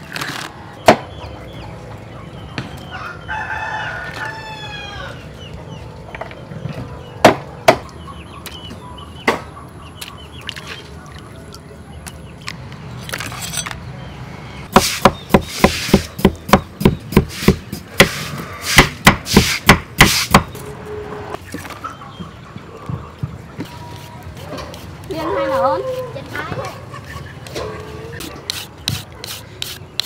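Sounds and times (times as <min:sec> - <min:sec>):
knife chopping on wooden board: 0:14.8 - 0:18.2, 0:18.8 - 0:20.5.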